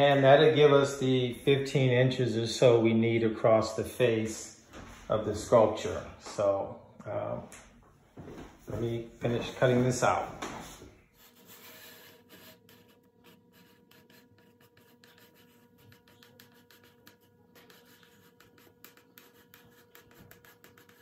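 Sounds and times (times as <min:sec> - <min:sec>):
faint steady hum: 0:00.0 - 0:21.0
foam cutter scratching foam: 0:11.2 - 0:21.0.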